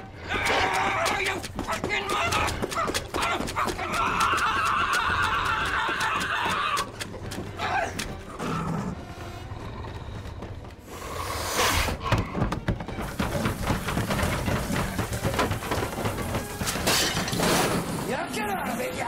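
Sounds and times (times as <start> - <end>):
man screaming: 3.2 - 6.9.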